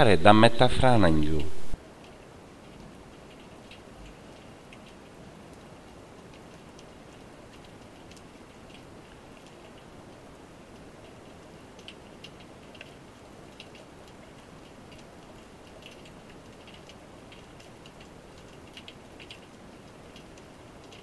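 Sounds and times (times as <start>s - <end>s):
sharp clicks and crackles: 6.3s - 9.9s, 11.7s - 21.0s.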